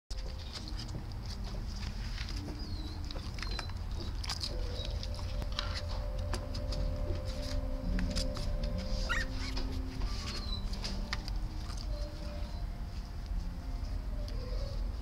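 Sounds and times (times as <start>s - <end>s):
steady low rumble: 0.1s - 15.0s
puppies suckling wet clicks: 0.2s - 6.4s.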